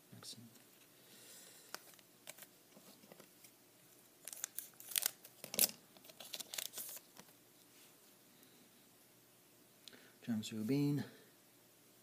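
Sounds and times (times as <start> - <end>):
foil wrapper tearing and crinkling: 4.2 - 7.0.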